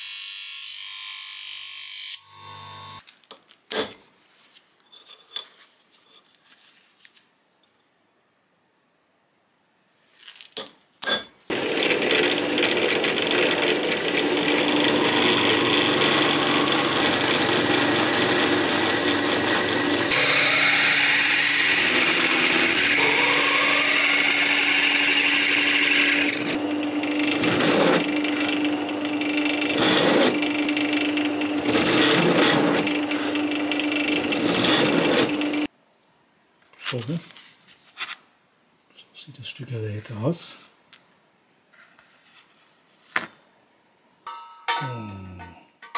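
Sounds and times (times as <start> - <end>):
power tool grinding metal: 11.5 - 35.7.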